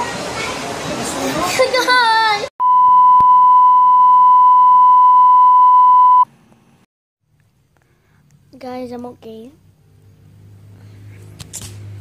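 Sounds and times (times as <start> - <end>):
steady test-tone beep: 2.6 - 6.3.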